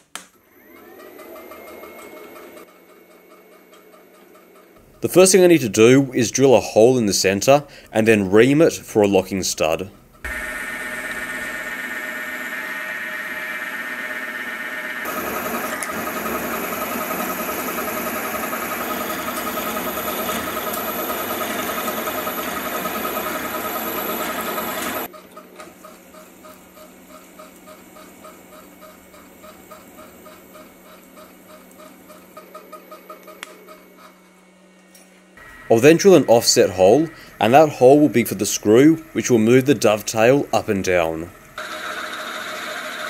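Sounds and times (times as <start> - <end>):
milling machine drilling steel: 10.3 - 25.1, 35.4 - 43.0.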